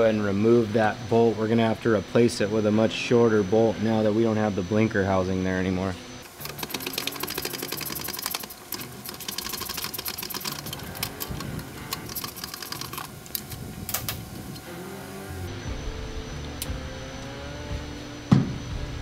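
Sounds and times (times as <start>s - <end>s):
hand ratchet clicking: 6.3s - 14.1s.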